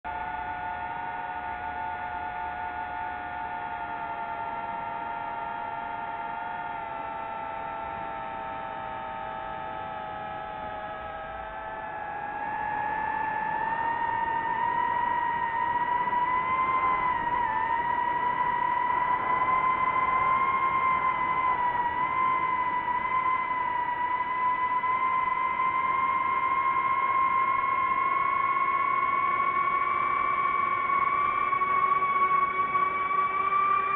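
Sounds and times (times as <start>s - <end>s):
quadcopter motors whining: 0.1s - 33.9s.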